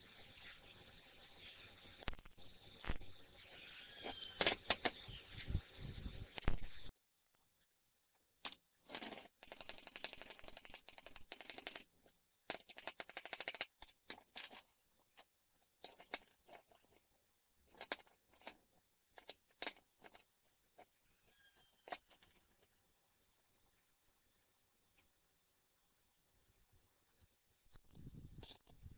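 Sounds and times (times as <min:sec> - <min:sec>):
welding arc crackling: 0:02.0 - 0:03.3.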